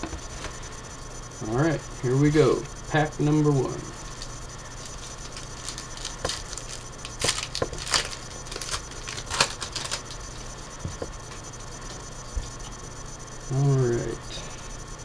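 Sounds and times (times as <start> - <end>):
cards being handled: 4.2 - 10.2
foil wrapper tearing and crinkling: 4.2 - 10.2.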